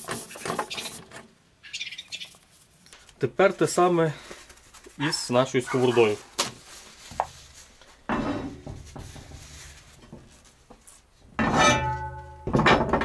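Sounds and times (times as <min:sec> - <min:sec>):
ringing metal clank: 0:11.4 - 0:12.9.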